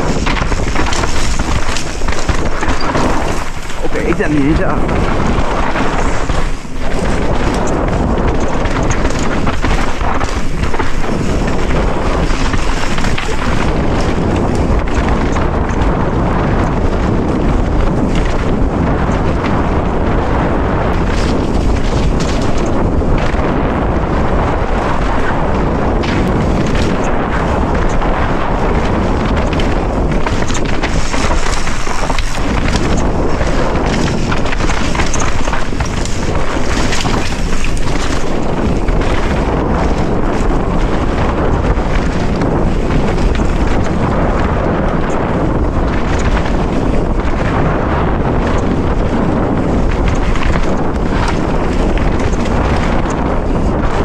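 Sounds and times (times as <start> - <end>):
tyres crunching on gravel: 0.0 - 8.2
bike knocking and rattling: 0.0 - 54.0
wind rushing over microphone: 0.0 - 54.0.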